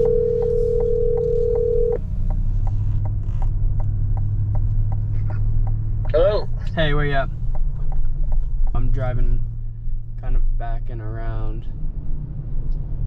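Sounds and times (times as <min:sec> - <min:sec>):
telephone ringback tone: 0:00.0 - 0:02.0
turn signal ticking: 0:00.0 - 0:09.6
road and engine hum: 0:00.0 - 0:13.0.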